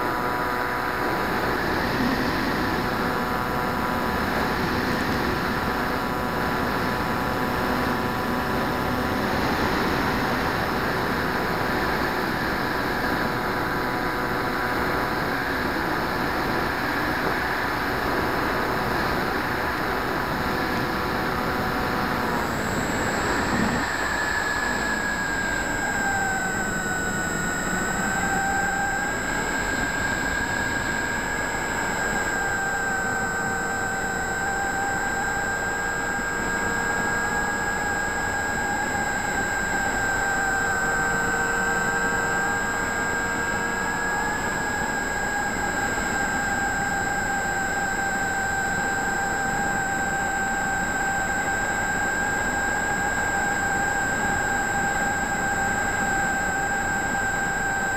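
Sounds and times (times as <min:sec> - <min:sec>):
electric motor and propeller whine: 0:00.0 - 0:57.9.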